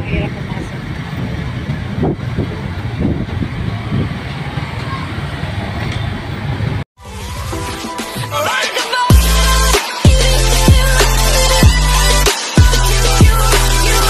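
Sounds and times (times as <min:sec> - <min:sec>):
vehicle engine and road noise: 0:00.0 - 0:06.9
electronic outro music: 0:07.0 - 0:14.0.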